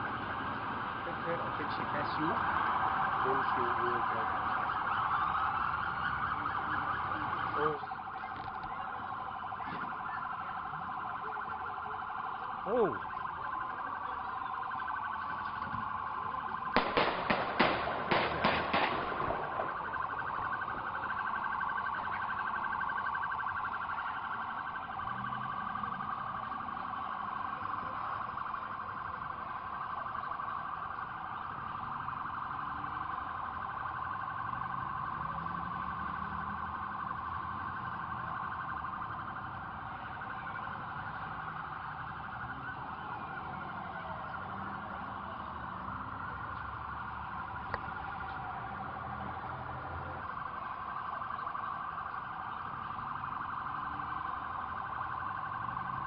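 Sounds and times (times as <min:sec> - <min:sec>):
pulsing high alarm tone: 0:00.0 - 0:56.0.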